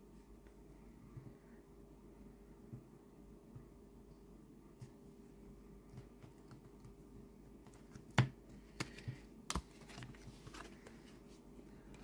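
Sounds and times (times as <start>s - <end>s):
cards clicking and tapping: 7.6s - 11.0s.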